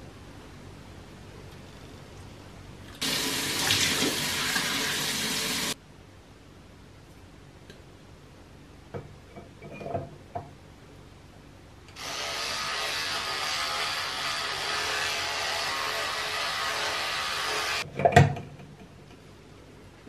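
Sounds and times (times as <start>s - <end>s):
electric toothbrush buzzing: 12.0s - 17.8s.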